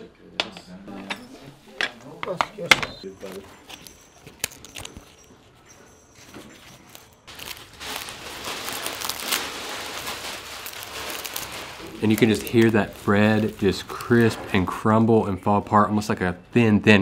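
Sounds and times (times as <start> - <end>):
bread tearing and crackling: 6.8 - 14.7.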